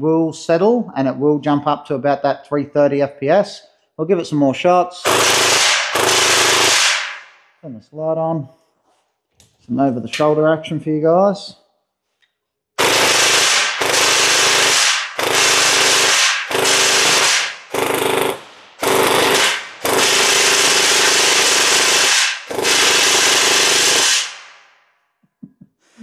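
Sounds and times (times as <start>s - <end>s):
gel blaster firing full auto: 5.0s - 7.3s, 12.8s - 24.6s.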